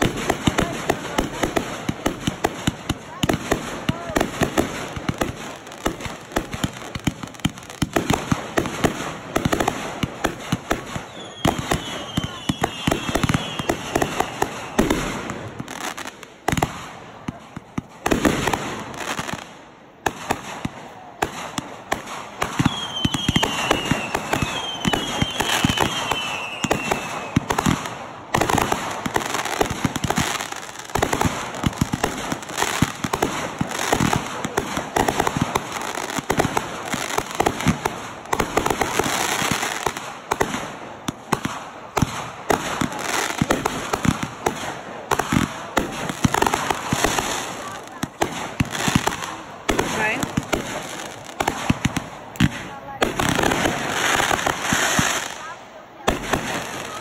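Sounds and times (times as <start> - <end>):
fireworks pops and crackling: 0.0 - 57.0
fireworks falling whistles: 10.4 - 16.7, 22.4 - 34.2.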